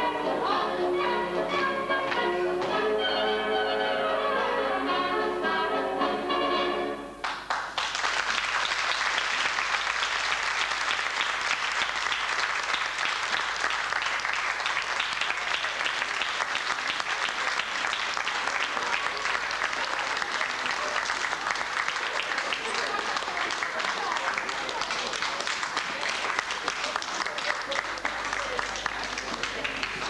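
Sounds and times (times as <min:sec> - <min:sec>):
music: 0:00.0 - 0:07.2
audience applauding: 0:07.2 - 0:30.0.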